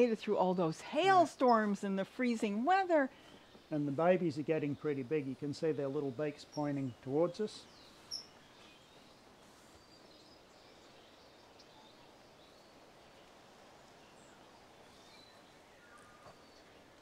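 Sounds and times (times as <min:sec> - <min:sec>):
faint background hiss: 0:00.0 - 0:17.0.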